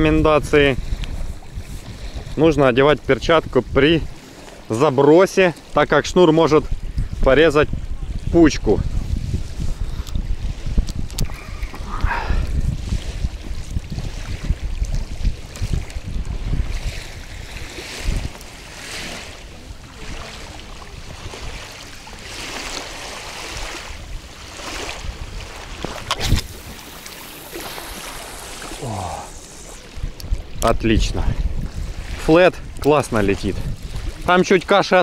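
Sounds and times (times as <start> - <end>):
wind buffeting microphone: 0.0 - 4.7, 5.7 - 35.0
waves lapping on stony shore: 0.0 - 35.0.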